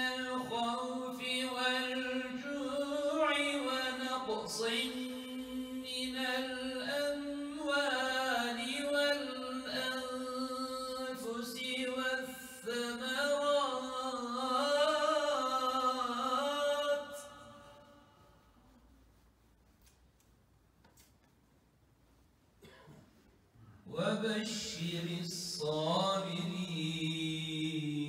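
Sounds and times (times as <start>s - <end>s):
man chanting a recitation: 0.0s - 17.9s, 23.9s - 28.0s.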